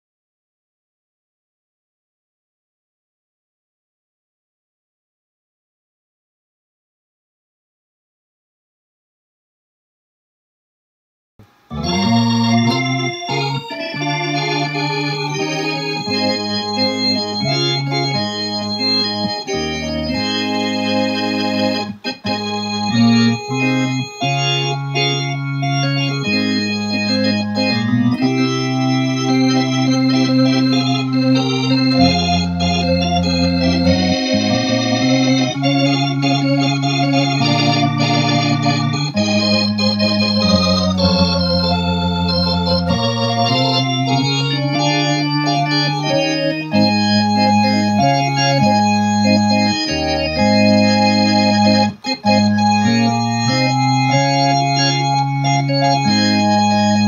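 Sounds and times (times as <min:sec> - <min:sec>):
organ playing gospel chords: 0:11.4 - 0:57.0.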